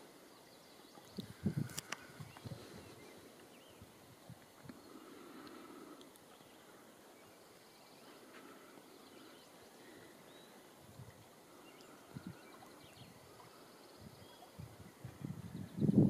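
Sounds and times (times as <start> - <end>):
distant bird chirps: 4.7 - 10.8.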